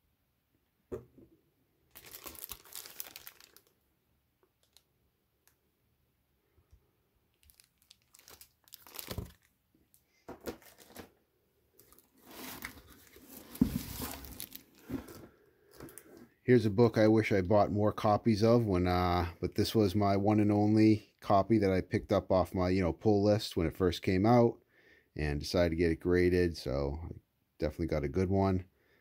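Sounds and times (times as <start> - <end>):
plastic sleeves crinkling: 1.9 - 3.8, 4.4 - 5.6, 7.3 - 16.2.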